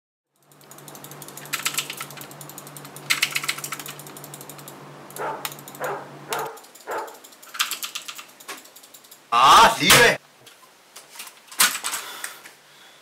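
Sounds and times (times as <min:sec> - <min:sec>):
steady low hum: 0:00.4 - 0:10.0.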